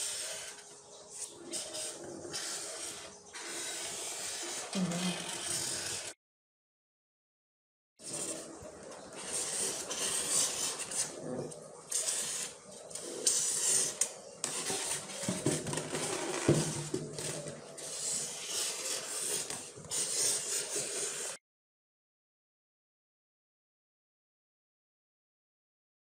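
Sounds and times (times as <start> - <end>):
marker scratching on foam: 0.0 - 6.2, 8.0 - 8.5, 9.1 - 21.4.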